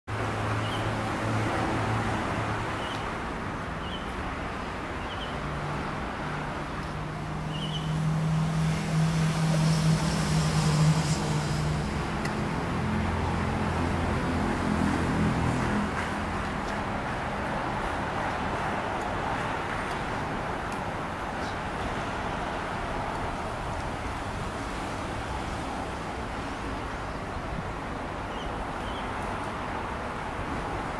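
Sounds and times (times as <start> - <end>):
hum of passing cars: 0.1 - 30.9
vehicle passing loudly: 7.2 - 16.4.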